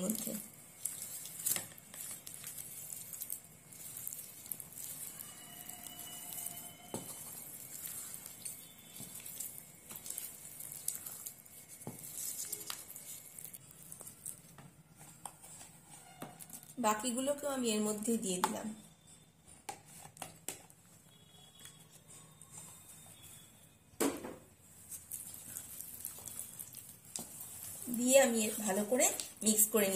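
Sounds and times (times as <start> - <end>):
spatula scraping bowl: 0.0 - 14.1.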